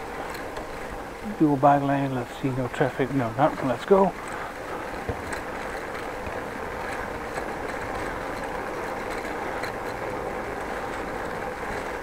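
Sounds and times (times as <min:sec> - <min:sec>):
bicycle rolling over brick paving: 0:00.0 - 0:12.0.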